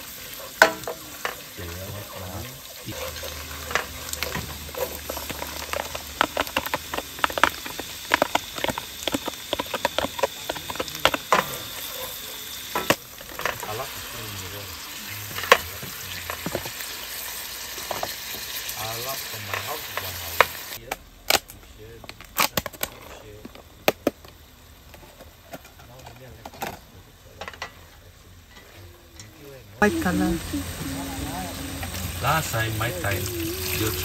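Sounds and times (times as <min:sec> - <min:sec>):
garlic sizzling in hot oil: 0:00.0 - 0:20.8, 0:29.8 - 0:34.0
wooden spatula scraping pan: 0:02.9 - 0:13.7.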